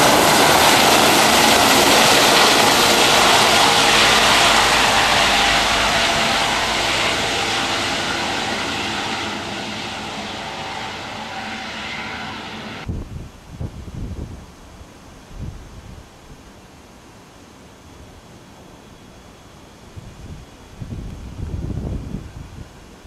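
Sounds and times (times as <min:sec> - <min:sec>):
helicopter flying: 0:00.0 - 0:12.9.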